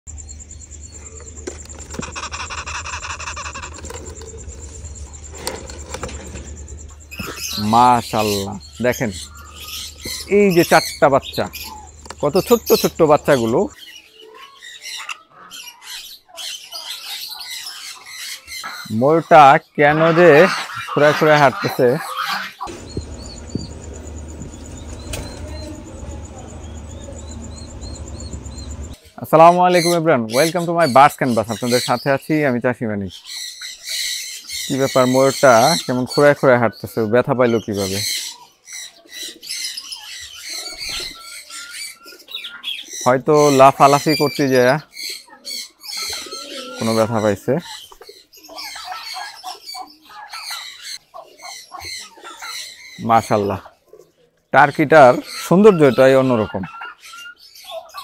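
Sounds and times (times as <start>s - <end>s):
birds chirping: 0.1s - 58.0s
steady low hum: 22.7s - 29.0s
steady low rumble: 22.7s - 29.0s.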